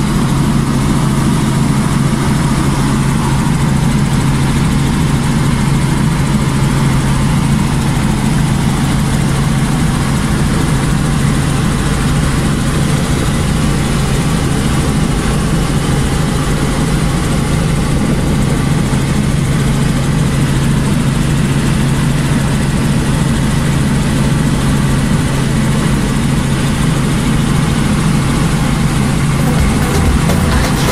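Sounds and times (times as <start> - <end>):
helicopter engine and rotor drone: 0.0 - 30.3.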